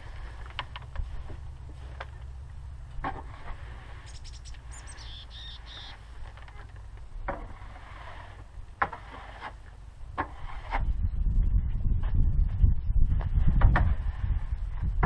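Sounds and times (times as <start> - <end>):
low steady rumble: 0.0 - 15.0
tool scraping floor: 3.0 - 4.1, 6.3 - 11.0
bird chirping: 4.0 - 6.0.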